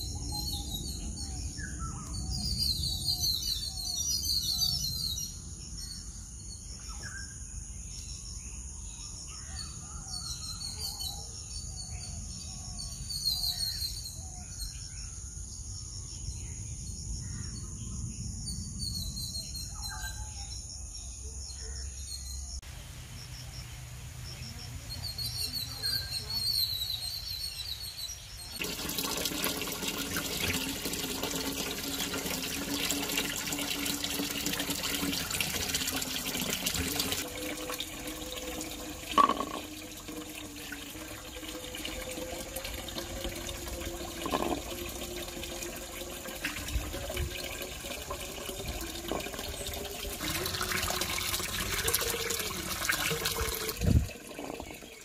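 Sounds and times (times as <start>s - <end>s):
birds chirping: 21.4s - 29.3s
fruit rubbed and washed by hand: 28.6s - 55.0s
tap water running into bowl: 28.6s - 55.0s.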